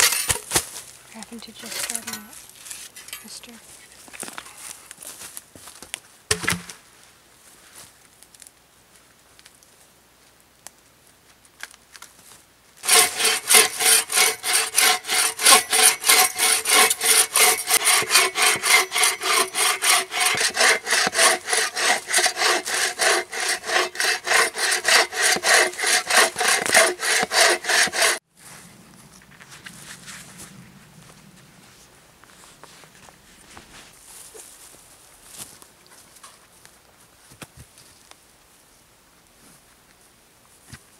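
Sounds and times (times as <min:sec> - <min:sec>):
saw cutting log: 0:12.8 - 0:28.2.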